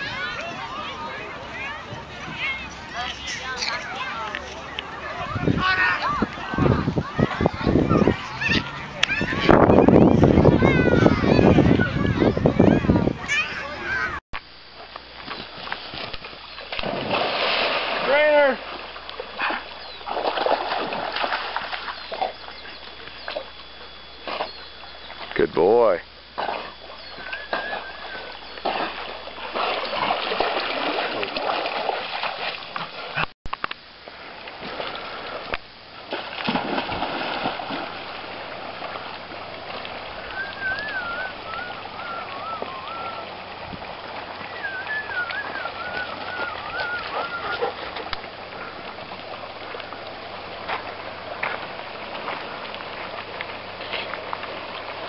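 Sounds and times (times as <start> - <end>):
running water rushing: 0.0 - 14.2, 15.1 - 55.0
water splashing around dog: 15.2 - 23.6, 26.3 - 33.3, 34.3 - 55.0
wavering high-pitched calls: 40.2 - 43.3, 44.4 - 47.6.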